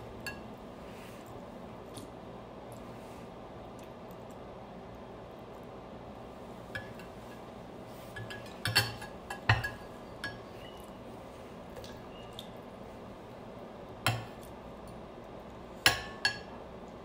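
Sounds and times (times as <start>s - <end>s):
metal spoon clinking on bowl: 8.2s - 10.8s.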